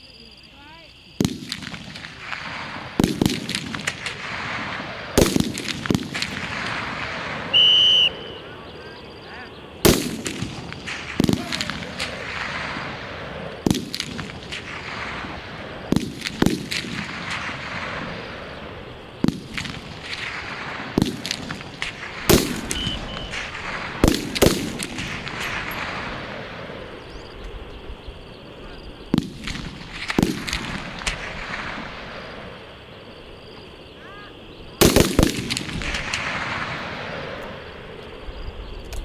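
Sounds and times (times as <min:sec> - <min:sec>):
rifle shots with echo: 0:01.2 - 0:08.4, 0:09.8 - 0:27.2, 0:29.0 - 0:32.6, 0:34.8 - 0:37.8.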